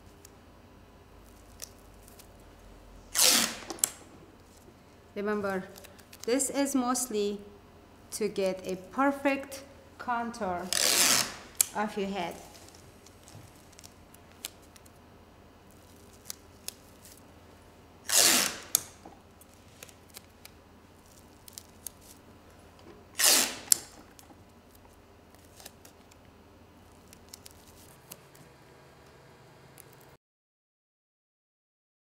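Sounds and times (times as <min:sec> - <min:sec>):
tape rustling on cling film: 0:01.2 - 0:02.4, 0:03.0 - 0:06.6, 0:10.6 - 0:15.0, 0:15.6 - 0:17.3, 0:18.1 - 0:28.6
masking tape ripping off roll: 0:03.1 - 0:04.0, 0:10.7 - 0:11.8, 0:15.7 - 0:17.2, 0:18.1 - 0:22.2, 0:23.1 - 0:24.2, 0:25.3 - 0:26.2, 0:27.0 - 0:28.4.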